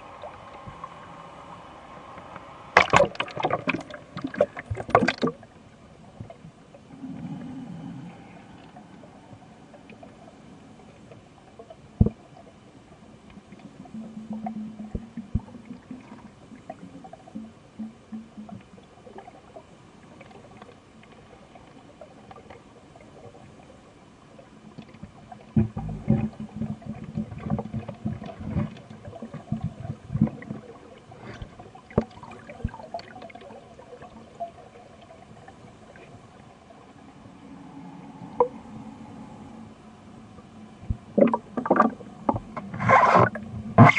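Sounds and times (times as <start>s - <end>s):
low underwater hum: 0.0s - 43.9s
underwater clicks and knocks: 2.8s - 5.4s, 14.4s - 15.8s, 24.8s - 30.6s, 40.9s - 43.9s.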